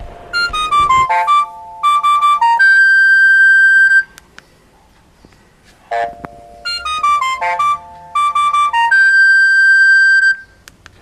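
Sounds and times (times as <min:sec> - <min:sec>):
electronic ringtone beeps: 0:00.3 - 0:04.1, 0:05.9 - 0:10.6.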